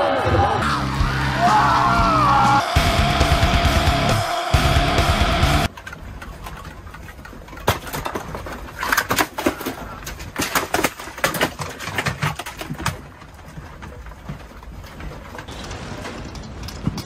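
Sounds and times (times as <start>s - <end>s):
heavy metal music: 0.0s - 5.7s
objects rattling on shelves: 5.6s - 17.0s
low rumble: 15.5s - 17.0s.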